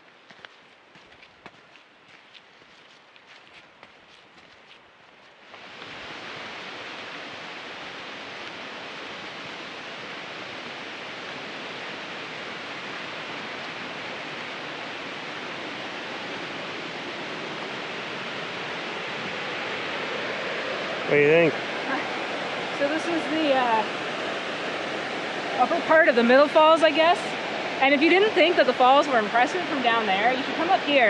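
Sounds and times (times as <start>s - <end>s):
footsteps on dirt trail: 0.0s - 7.1s
waterfall rushing: 5.6s - 31.0s.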